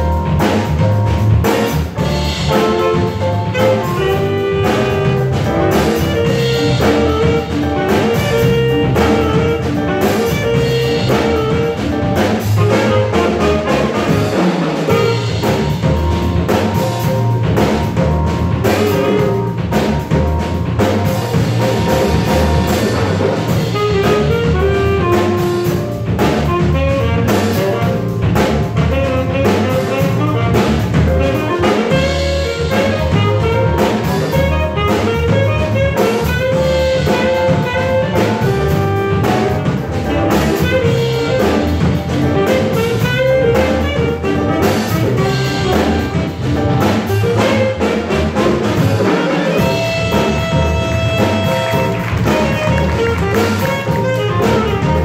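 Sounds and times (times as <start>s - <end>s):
digital piano: 0.0s - 55.0s
drum kit: 0.0s - 55.0s
saxophones playing: 0.0s - 55.0s.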